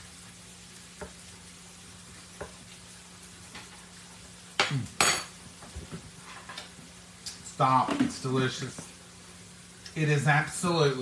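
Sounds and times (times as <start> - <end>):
faint sizzling hiss: 0.0 - 11.0
person humming mm: 4.6 - 5.0.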